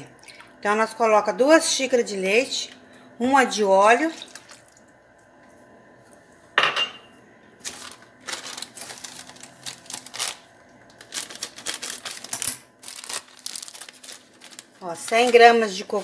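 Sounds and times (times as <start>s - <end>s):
kitchenware clattering: 6.6s - 7.1s.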